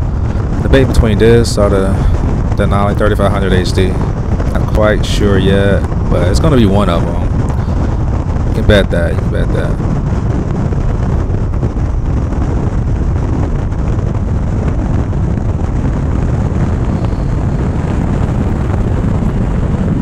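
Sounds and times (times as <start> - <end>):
road tyre and engine rumble: 0.0 - 20.0.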